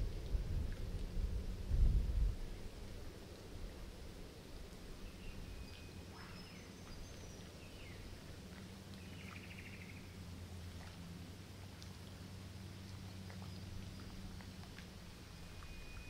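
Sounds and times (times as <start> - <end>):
wind rumble on microphone: 0.0 - 10.1
small birds chirping and whistling: 5.0 - 8.0, 15.4 - 16.0.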